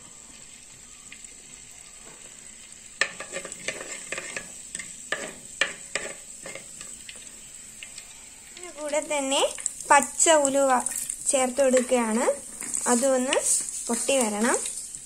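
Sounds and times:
seeds sizzling and popping in oil: 0.0s - 15.0s
spatula knocking and scraping pot: 3.0s - 7.0s.

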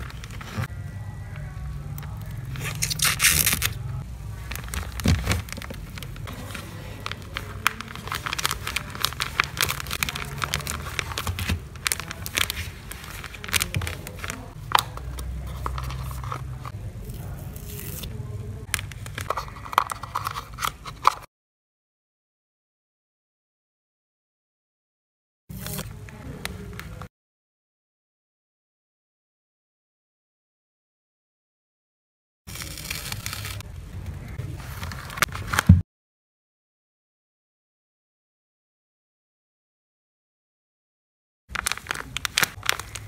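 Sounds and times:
plastic sleeve crinkling: 2.2s - 21.3s, 32.5s - 33.7s, 41.5s - 43.0s.

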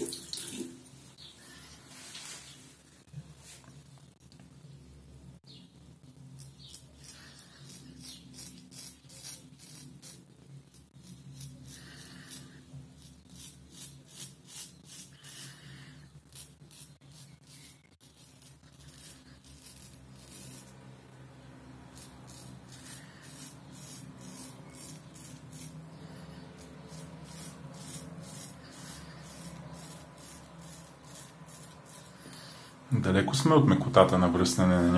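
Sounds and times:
straight razor scraping stubble: 6.4s - 15.6s, 16.3s - 20.8s, 21.9s - 32.5s.

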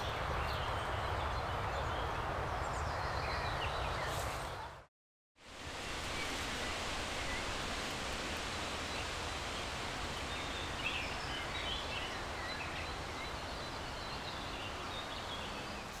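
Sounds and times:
wind: 0.0s - 16.0s
rustling vegetation: 3.2s - 4.8s.

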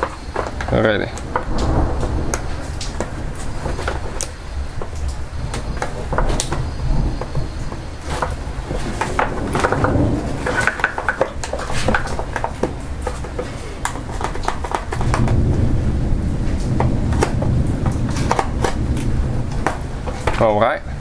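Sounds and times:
low rumble: 1.2s - 5.7s, 15.1s - 20.1s.

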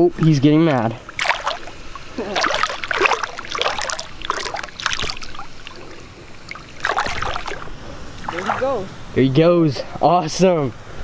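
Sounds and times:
fish splashing in water: 1.0s - 8.9s.

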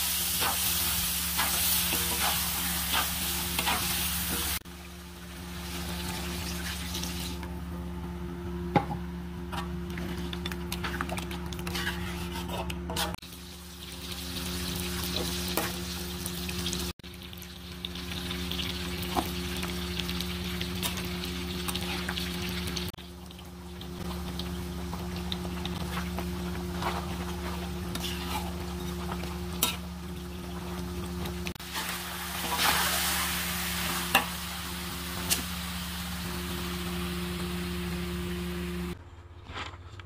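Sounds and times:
food sizzling in a pan: 0.0s - 7.4s, 13.2s - 38.9s.

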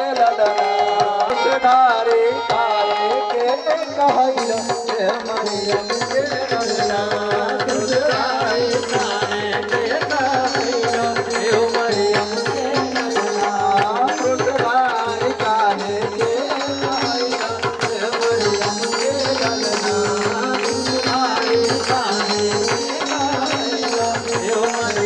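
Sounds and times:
keyboard melody: 0.0s - 25.0s
congregation hand-clapping: 16.2s - 25.0s.

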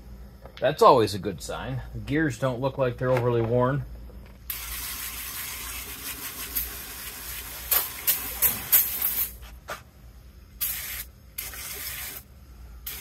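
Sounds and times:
aerosol spray can hissing: 7.7s - 9.4s, 10.6s - 12.2s.

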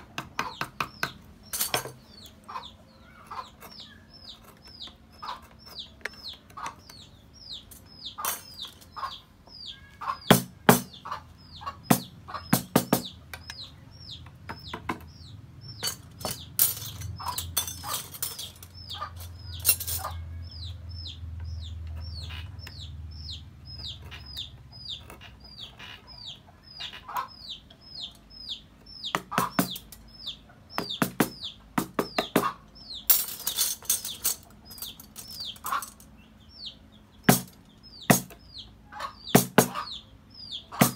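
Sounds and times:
chisel knocking on hardwood: 0.0s - 1.2s, 10.3s - 10.9s, 11.9s - 13.6s, 14.4s - 15.1s, 39.3s - 39.8s
bird peeping: 0.0s - 40.9s.

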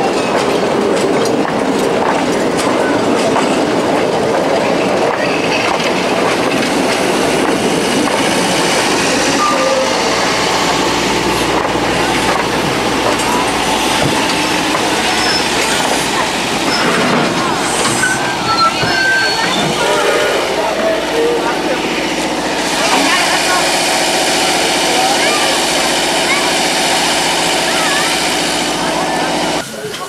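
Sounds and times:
train wheels rumbling on track: 0.0s - 30.0s
faint wheel squeals: 17.9s - 20.2s.

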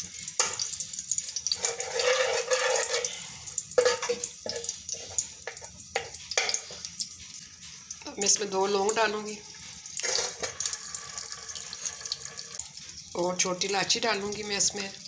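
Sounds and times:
spoon scraping metal pot: 1.4s - 6.8s, 9.6s - 10.8s.

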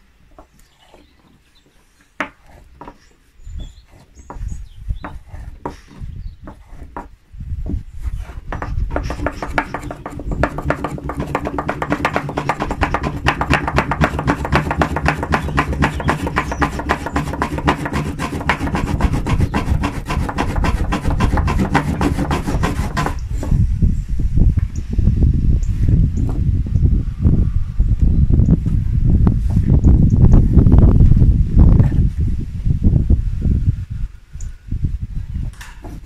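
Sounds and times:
wooden block rubbing on wood: 0.4s - 23.7s.

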